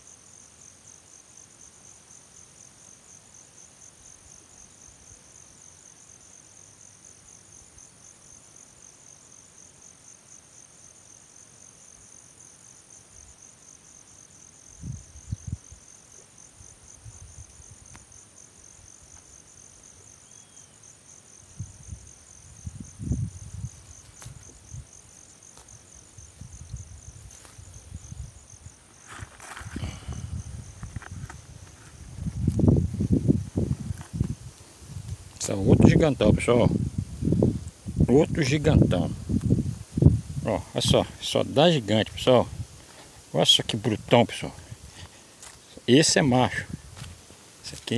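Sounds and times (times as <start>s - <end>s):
crickets chirping: 0.0s - 47.9s.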